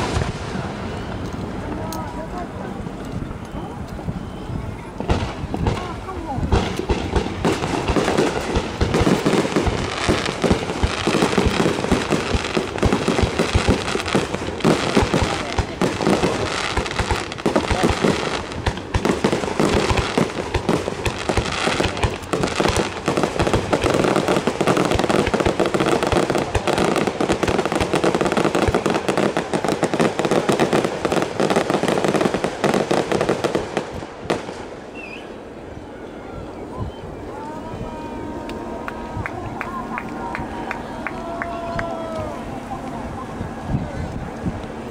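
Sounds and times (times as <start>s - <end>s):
firework crackle: 0.0s - 35.7s
firework shells bursting: 5.0s - 34.9s.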